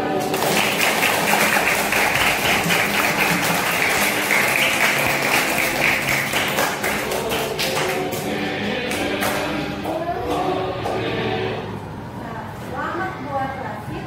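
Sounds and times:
children and teacher clapping: 0.0s - 11.0s.

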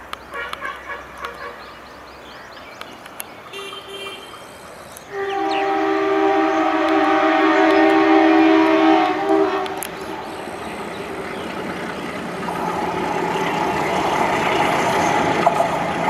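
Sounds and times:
locomotive horn: 0.3s - 1.6s, 3.6s - 4.4s, 5.1s - 10.2s.

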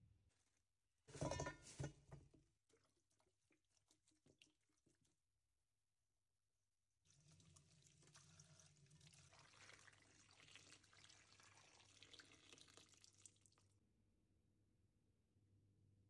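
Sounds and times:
water poured into a metal bowl: 7.1s - 13.7s.

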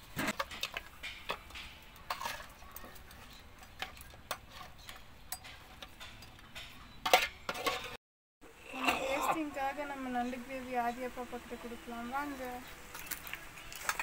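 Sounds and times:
ladle scraping metal pan: 0.1s - 6.2s, 7.1s - 8.0s.

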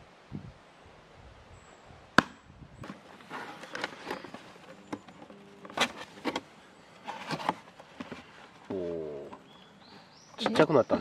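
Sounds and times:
cardboard flaps scraping: 2.8s - 8.9s.

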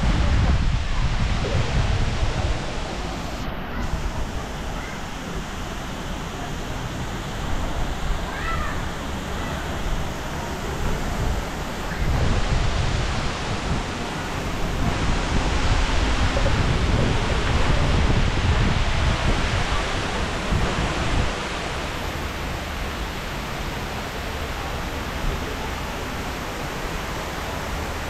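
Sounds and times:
wind buffeting microphone: 0.0s - 5.5s, 9.7s - 24.4s.

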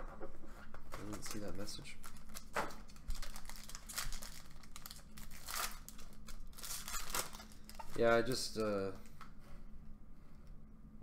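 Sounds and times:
foil wrapper crinkling and tearing: 1.0s - 8.6s.

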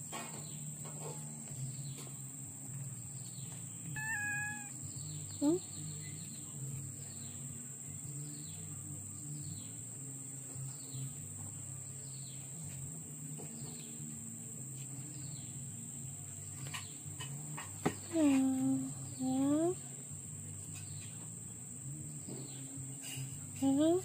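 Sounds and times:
bird chirping: 3.1s - 7.5s
high-pitched insect drone: 3.9s - 6.0s.

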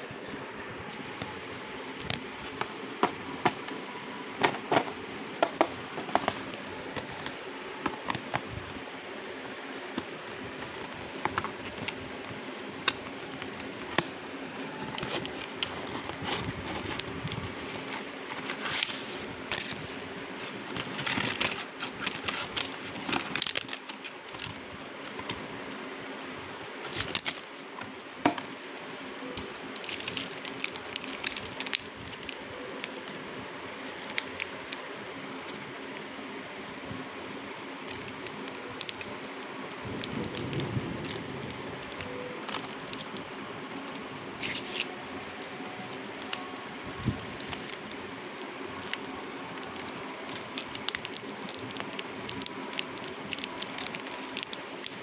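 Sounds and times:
faint steady hum: 0.0s - 55.0s
cardboard rubbing and rustling: 14.6s - 25.3s.

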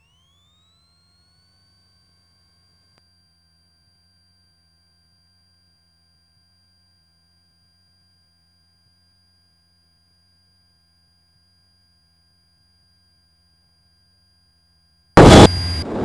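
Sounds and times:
high-pitched electrical whine: 0.0s - 16.0s
low hum: 15.2s - 16.0s.

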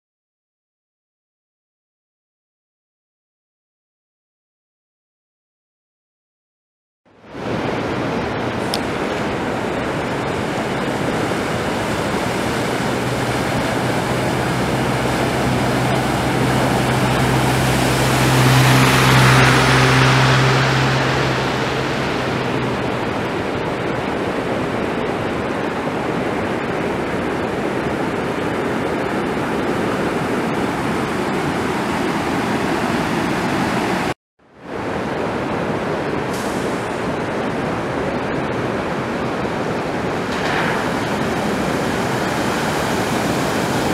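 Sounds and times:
truck engine hum: 7.2s - 34.1s
floodwater rushing: 7.2s - 43.9s
truck splashing through water: 7.3s - 39.2s, 40.2s - 43.9s.

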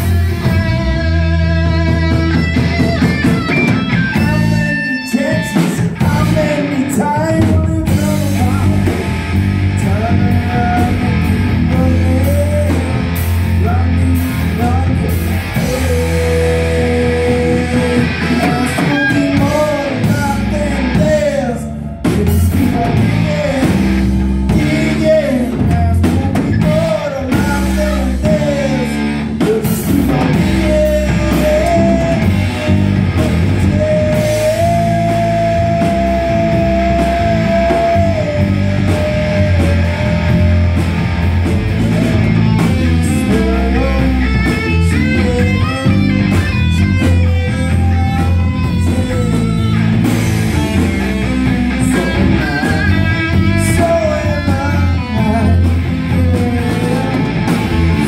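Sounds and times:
lead guitar bending notes: 0.0s - 7.0s, 22.6s - 58.0s
live rock band playing: 0.0s - 58.0s.

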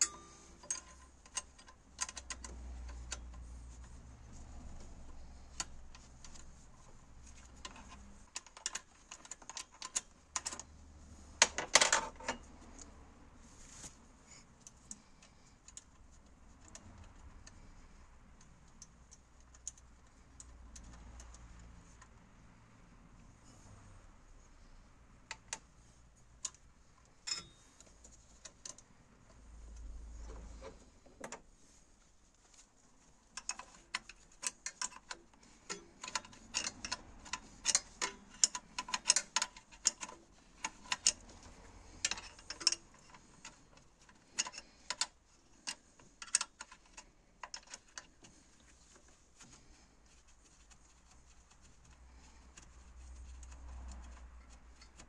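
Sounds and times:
spanner clicking on a bolt: 33.4s - 48.3s.

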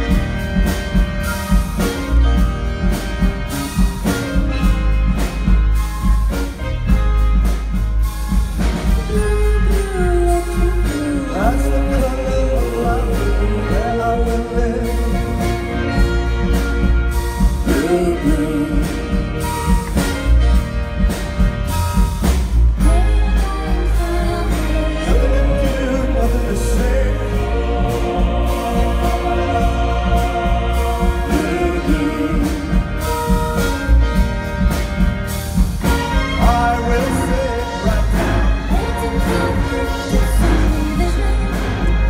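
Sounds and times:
deep bass: 0.0s - 42.0s
orchestra and band playing pop: 0.0s - 42.0s
people singing: 9.1s - 16.3s, 17.6s - 20.0s, 22.8s - 33.4s, 35.9s - 42.0s.

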